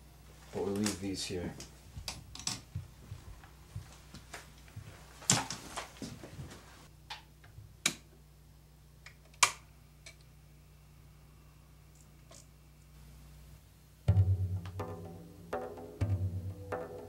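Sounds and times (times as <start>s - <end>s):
faint low hum: 0.0s - 17.0s
clicks and knocks of handling: 1.6s - 2.8s.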